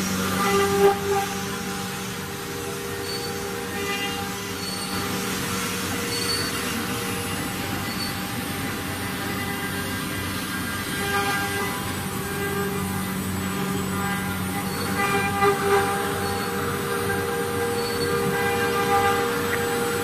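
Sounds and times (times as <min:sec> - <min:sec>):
cnc router hum and whine: 0:00.0 - 0:20.0.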